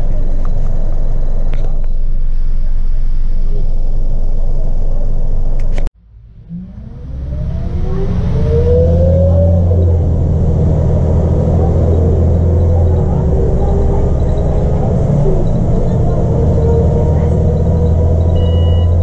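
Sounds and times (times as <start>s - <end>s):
bus diesel engine running: 0.0s - 19.0s
gearbox whine: 0.0s - 19.0s.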